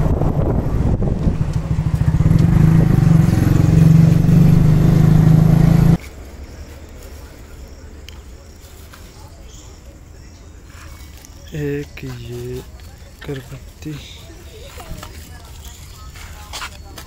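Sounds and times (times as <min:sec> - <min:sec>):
vehicle engine running: 0:00.0 - 0:08.0.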